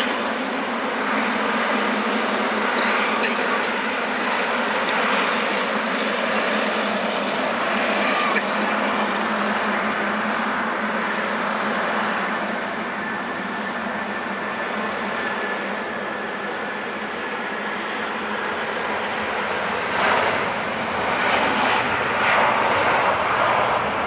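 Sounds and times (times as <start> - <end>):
jet engines rushing and whining: 0.0 - 24.0.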